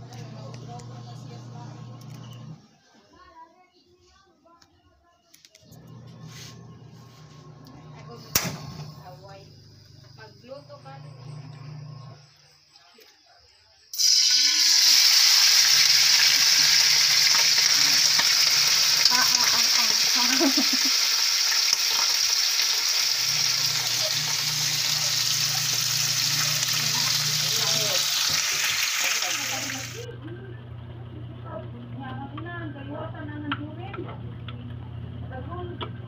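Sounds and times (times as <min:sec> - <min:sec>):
meat sizzling in hot oil: 0:13.9 - 0:30.0.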